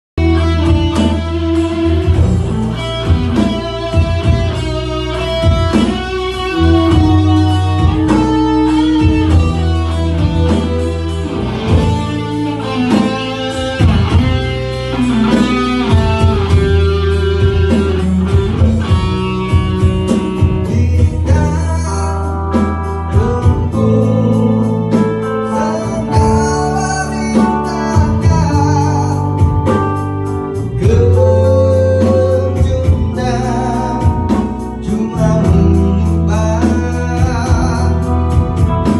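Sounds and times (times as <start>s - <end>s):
bass guitar: 0.0s - 38.9s
electronic drums: 0.2s - 22.0s
electric guitar solo: 0.2s - 38.9s
keyboard: 0.2s - 38.9s.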